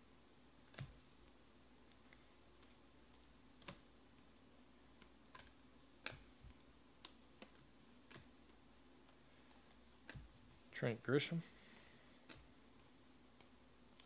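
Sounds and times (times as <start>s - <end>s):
cards sliding and snapping: 4.9s - 10.3s.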